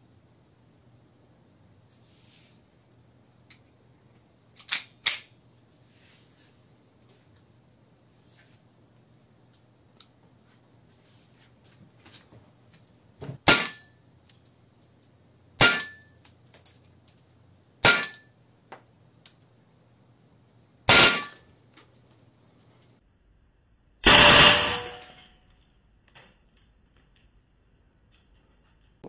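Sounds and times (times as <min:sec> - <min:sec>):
pistol handling clicks: 0:04.6 - 0:05.3
airsoft pistol shots: 0:13.4 - 0:13.9, 0:15.6 - 0:16.0, 0:17.8 - 0:18.2, 0:20.9 - 0:21.4, 0:24.0 - 0:25.0.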